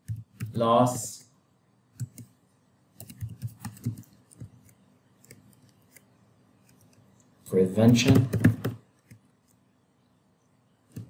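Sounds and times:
computer keyboard typing: 0.0s - 0.6s, 2.0s - 2.4s, 3.0s - 6.0s, 7.8s - 9.2s.

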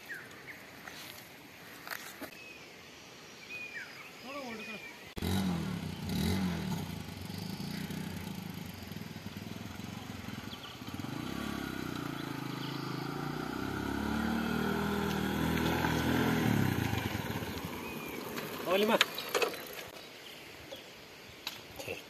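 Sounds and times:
motorcycle engine running: 5.2s - 19.9s.

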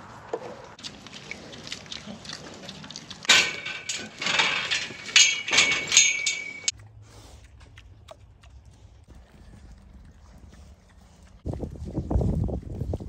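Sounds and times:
metal gates clanging and rattling: 3.2s - 6.7s.

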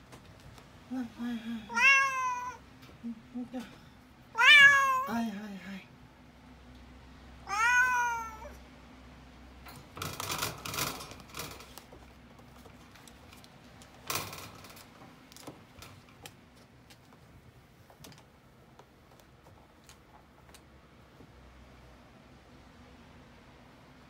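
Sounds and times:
cat claws scraping in cage: 9.8s - 12.1s.

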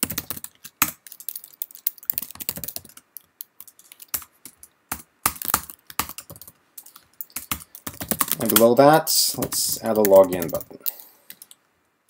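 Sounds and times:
computer keyboard typing: 0.0s - 11.6s.

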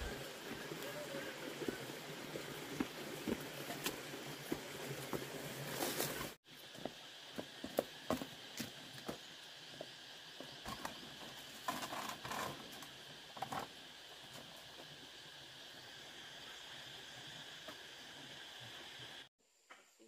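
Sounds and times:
insect chorus: 5.8s - 20.0s.

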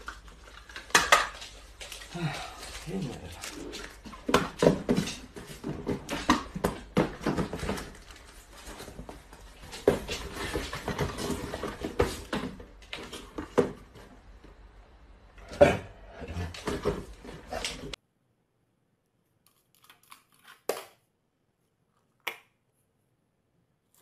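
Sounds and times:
cardboard boxes knocking: 4.2s - 8.1s.

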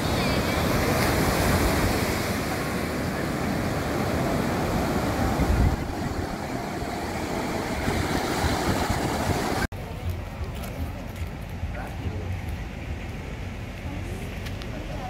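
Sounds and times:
surf breaking on sandy beach: 0.0s - 9.7s
wind buffeting microphone: 0.0s - 9.7s.

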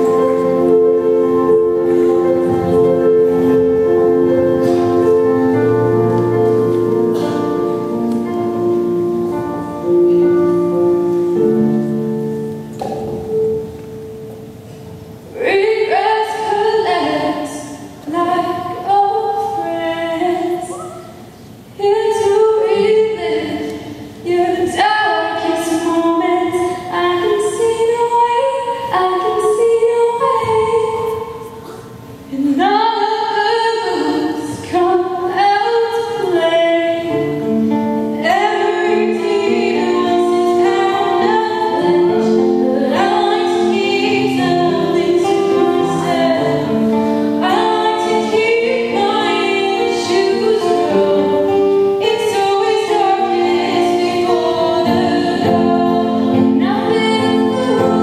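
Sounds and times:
acoustic guitar: 0.0s - 58.0s
low held accompaniment notes: 0.0s - 58.0s
woman singing: 15.3s - 20.9s, 21.8s - 31.5s, 32.3s - 58.0s.

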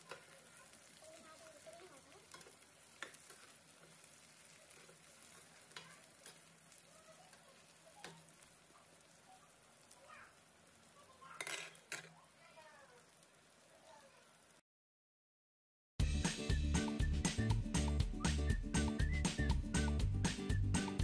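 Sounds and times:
vegetables sizzling in oil: 0.0s - 14.6s
spatula clicking against pan: 2.2s - 3.5s, 4.7s - 8.4s.

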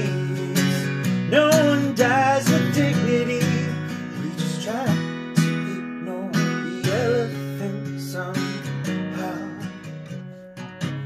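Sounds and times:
person singing: 0.0s - 10.2s
acoustic guitar strumming: 0.0s - 11.0s.

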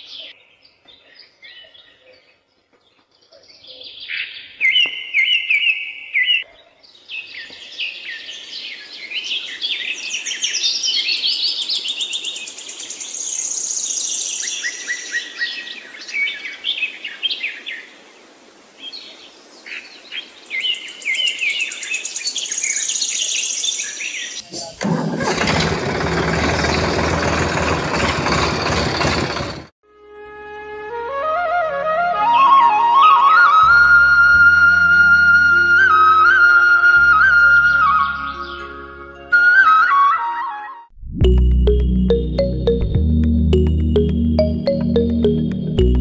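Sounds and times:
birds chirping and trilling: 0.0s - 17.9s.

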